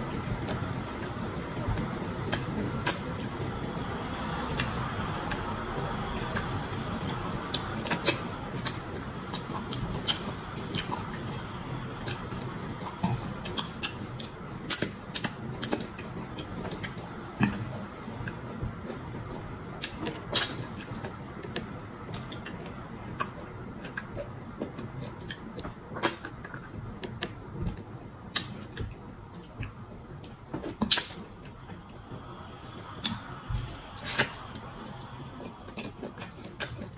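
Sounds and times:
wet chewing and lip-smacking: 6.2 - 11.4, 12.0 - 31.6, 32.9 - 36.9
sharp mouth clicks: 30.7 - 31.2, 34.0 - 34.4.

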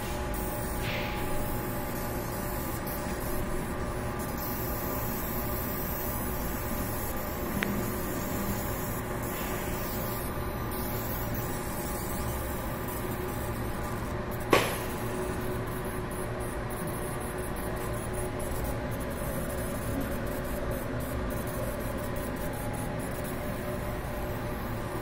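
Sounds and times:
laser marking machine humming: 0.0 - 25.0
sharp click: 14.5 - 14.8.

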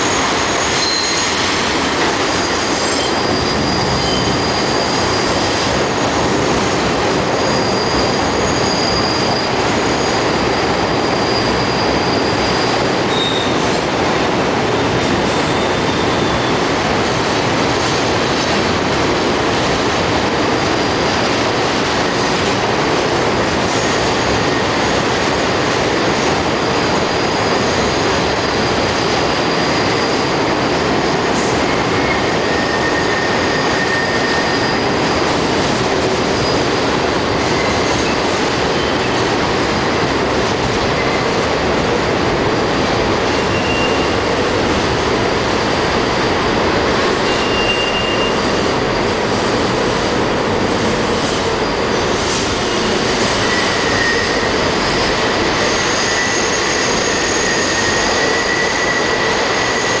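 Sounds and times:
high wheel squeals: 0.0 - 14.0, 15.2 - 16.8, 26.4 - 41.5, 42.8 - 60.0
subway train wheels rumbling: 0.0 - 60.0.

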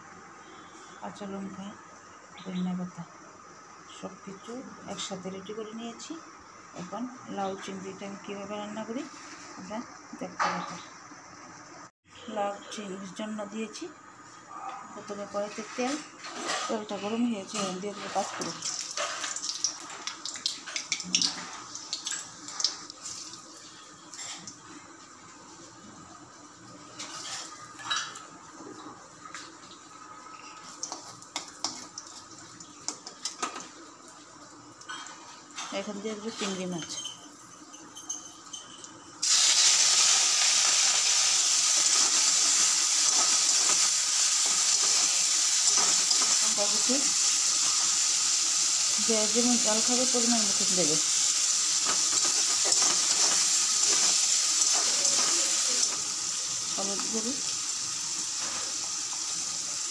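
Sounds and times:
seeds sizzling in hot oil: 15.1 - 28.3, 29.4 - 59.9.

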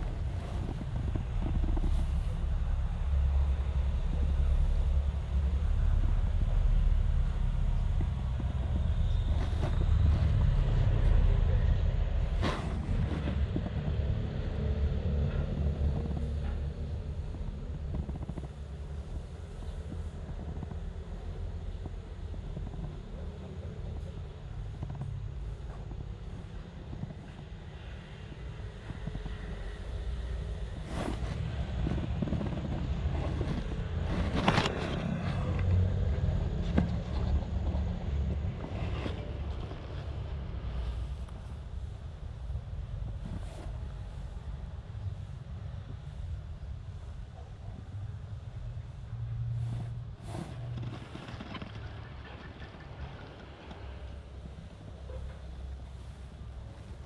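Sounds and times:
wind rumbling on microphone: 0.0 - 57.0.

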